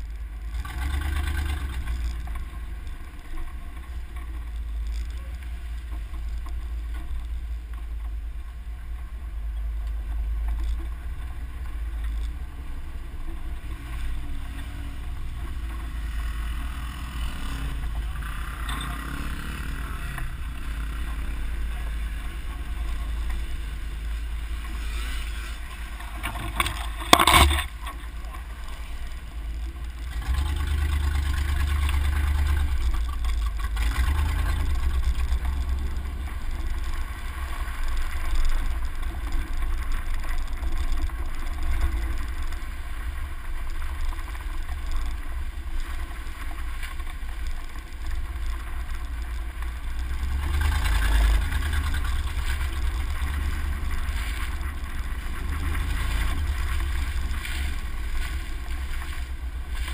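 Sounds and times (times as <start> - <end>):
truck driving on gravel: 0.0 - 59.9.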